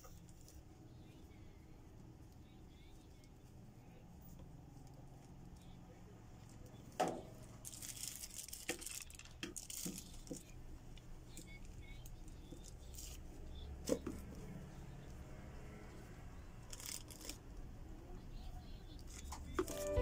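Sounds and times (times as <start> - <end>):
plastic wrapping crinkling: 7.3 - 10.6, 16.7 - 17.4.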